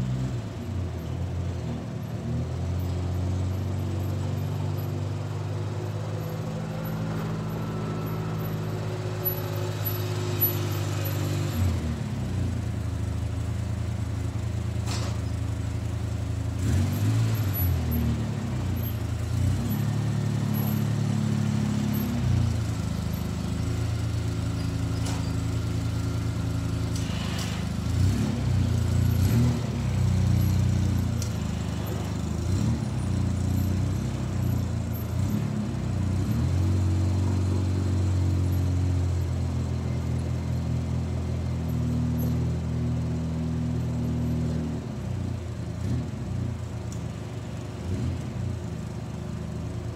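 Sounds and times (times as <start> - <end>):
atv engine running: 0.7 - 44.6.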